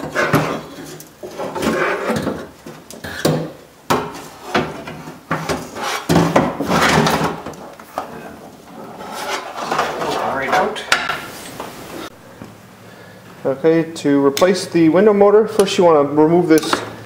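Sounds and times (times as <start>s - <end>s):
metal clunking and scraping: 0.0s - 12.1s.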